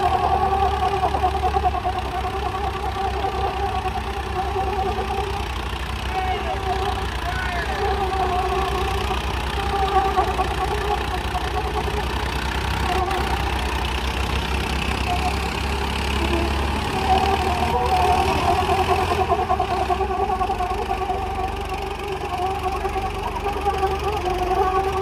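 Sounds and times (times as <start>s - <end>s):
tractor diesel engines running: 0.0s - 25.0s.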